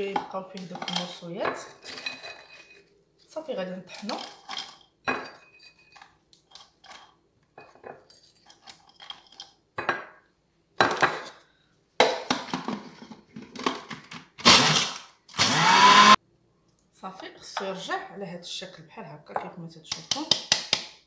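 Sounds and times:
glass dish and utensils clinking: 0.8 - 2.9, 4.0 - 6.2.

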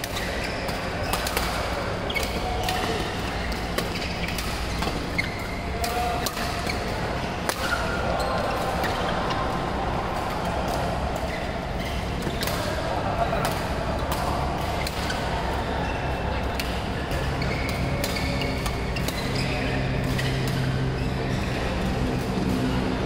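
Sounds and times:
racket hitting shuttlecock: 0.0 - 7.9, 16.5 - 19.4
din of play in hall: 0.0 - 23.0
shoes squeaking on court: 2.1 - 5.7, 17.2 - 21.5.

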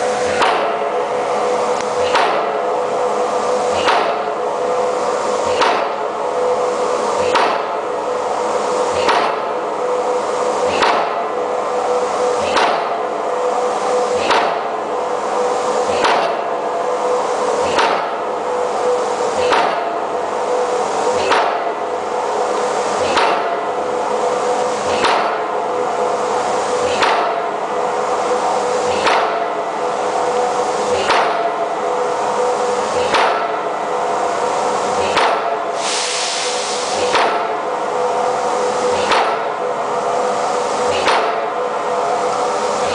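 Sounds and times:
steady hum: 0.0 - 42.9
hammer striking steel pipe: 0.3 - 0.9, 7.2 - 7.7, 19.4 - 20.0.

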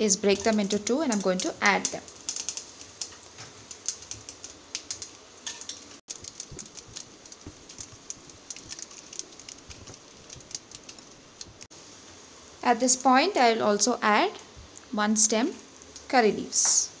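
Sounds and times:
seeds crackling and popping in oil: 0.0 - 11.7
faint sizzle: 0.0 - 17.0.

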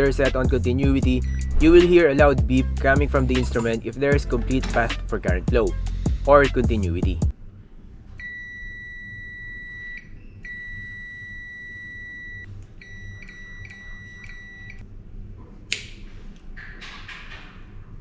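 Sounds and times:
continuity buzzer beeping: 8.3 - 14.8.

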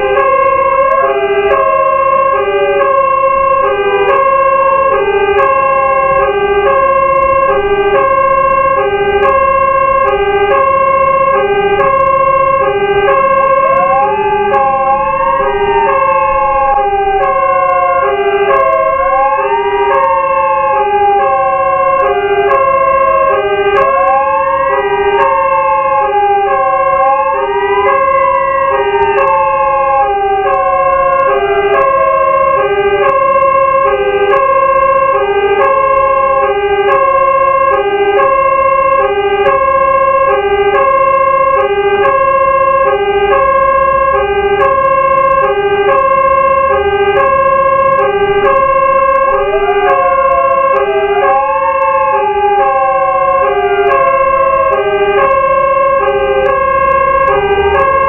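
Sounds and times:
hi-lo fire engine siren: 0.0 - 58.0
wailing siren: 0.0 - 58.0.

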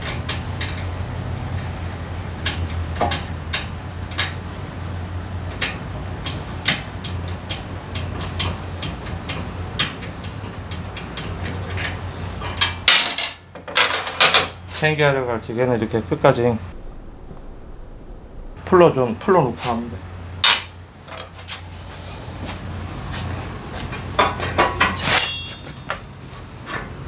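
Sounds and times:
steady low hum: 0.0 - 27.0
metal clatter: 23.9 - 26.9.

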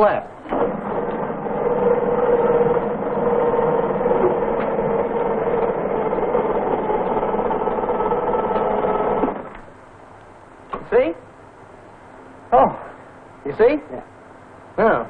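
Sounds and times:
electric motor whine: 0.4 - 9.4.

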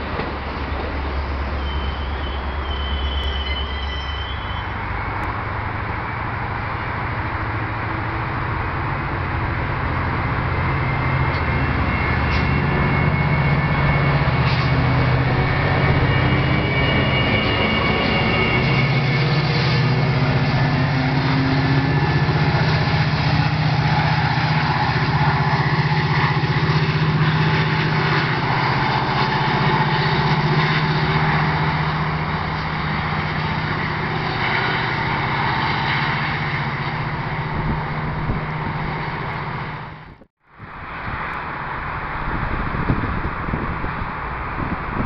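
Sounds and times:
diesel locomotive engine drone: 0.0 - 45.0
wheels on rails: 7.2 - 45.0.

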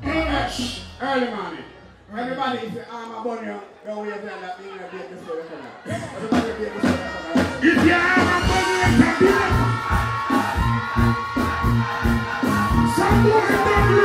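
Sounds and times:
loud dancehall music: 0.0 - 2.3, 5.9 - 14.0.

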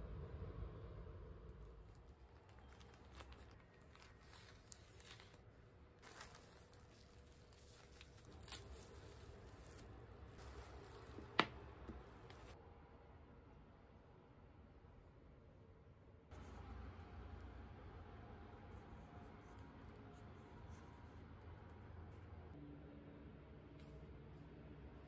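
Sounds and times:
paper and bubble wrap crinkling: 1.9 - 12.6.

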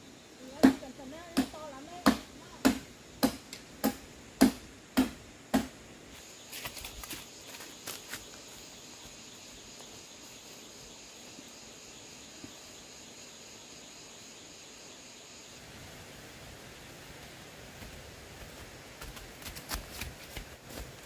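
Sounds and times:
high-pitched insect trill: 0.0 - 3.1, 6.1 - 16.9.

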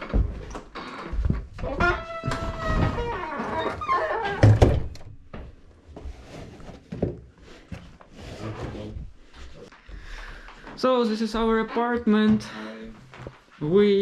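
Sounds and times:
small knocks and rustling: 0.0 - 8.2.

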